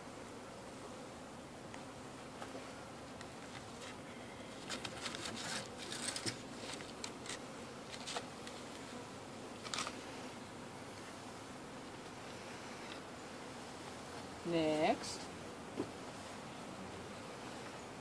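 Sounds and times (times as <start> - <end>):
honeybees humming: 0.0 - 18.0
scrapes and rustles: 3.4 - 9.0.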